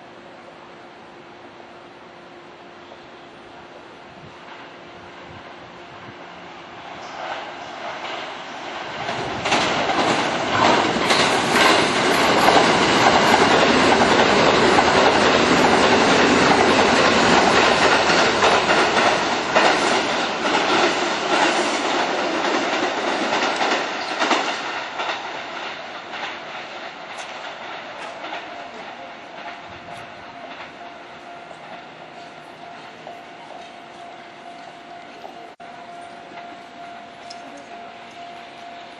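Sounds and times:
electric train passing: 0.0s - 38.9s
wheels clicking over rail joints: 7.0s - 30.8s.

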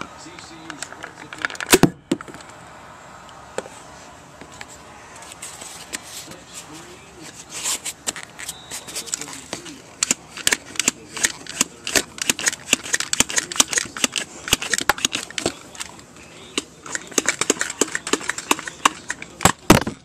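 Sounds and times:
plastic toy clicks and rattles: 0.7s - 1.8s, 10.0s - 20.0s.

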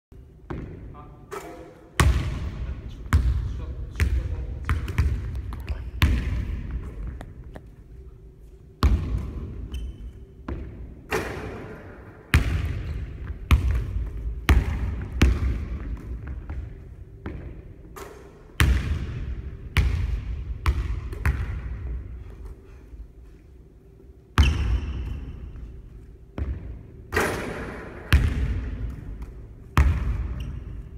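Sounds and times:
basketball bouncing on wooden floor: 0.4s - 0.8s, 8.8s - 10.8s, 12.3s - 19.2s, 19.8s - 21.8s, 26.4s - 27.3s, 28.1s - 30.8s.

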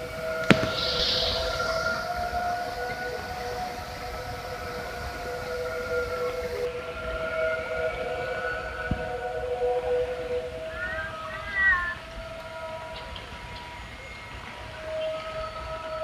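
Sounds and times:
steady siren-like chord: 0.0s - 16.0s.

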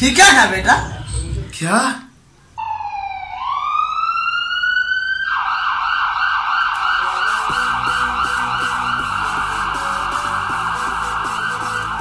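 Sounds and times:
siren wailing and yelping: 2.6s - 12.0s
music with ticking beat: 7.3s - 12.0s.

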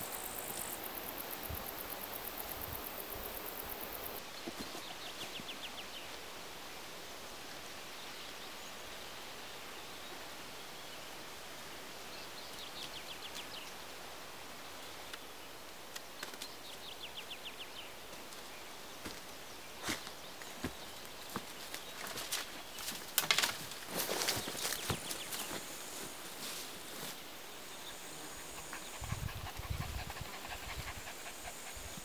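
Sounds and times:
steady forest hiss: 0.0s - 32.0s
cracks and rustles in undergrowth: 15.0s - 16.9s, 18.0s - 27.3s.

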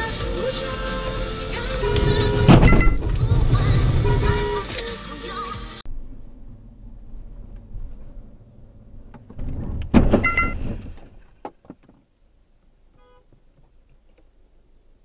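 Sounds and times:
loud thump: 2.0s - 4.4s, 5.9s - 11.3s.

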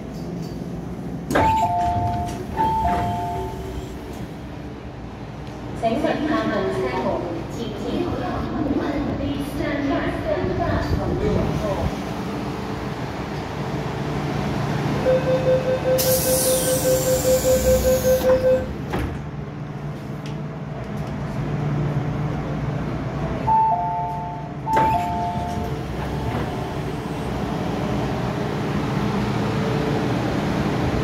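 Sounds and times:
train humming: 0.0s - 31.0s
train doors shutting knock: 1.2s - 4.3s, 16.0s - 19.4s, 24.0s - 27.0s
rapid door warning beeps: 15.1s - 18.7s.

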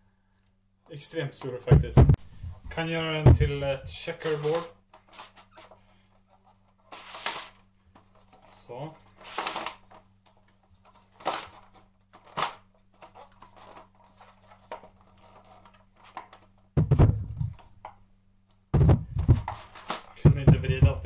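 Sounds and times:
low thumps and rumbling: 1.7s - 4.0s, 16.8s - 17.6s, 18.7s - 19.6s, 20.3s - 21.0s.

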